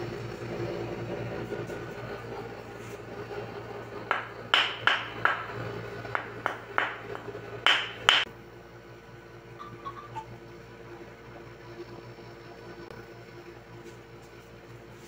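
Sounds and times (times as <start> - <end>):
wooden stick tapping bare skin: 4.1 - 5.6, 6.2 - 8.3.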